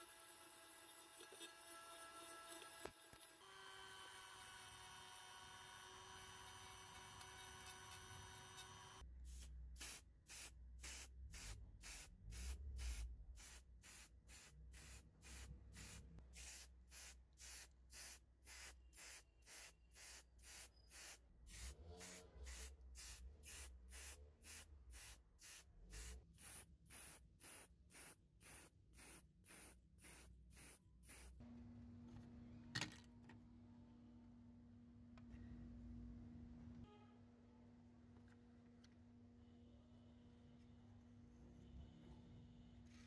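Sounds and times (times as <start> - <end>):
spray can hissing in puffs: 9.3 - 31.4.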